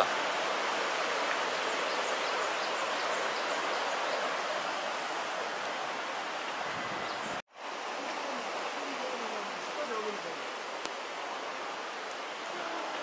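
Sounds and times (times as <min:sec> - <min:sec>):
stream rushing over boulders: 0:00.0 - 0:13.0.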